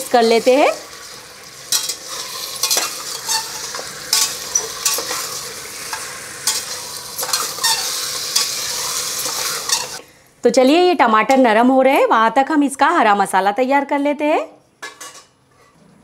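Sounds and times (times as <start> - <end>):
oil sizzling: 0.0 - 10.1
spatula scraping metal pot: 1.7 - 10.0.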